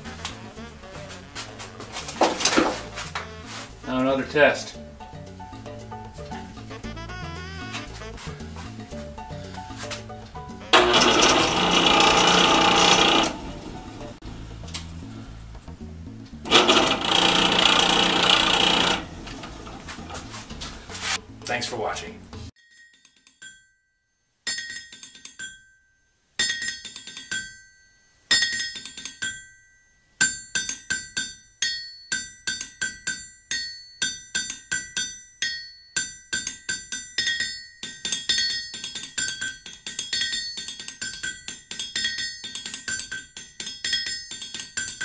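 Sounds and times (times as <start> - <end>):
metallic percussion strikes: 7.6 - 15.0, 16.4 - 23.8.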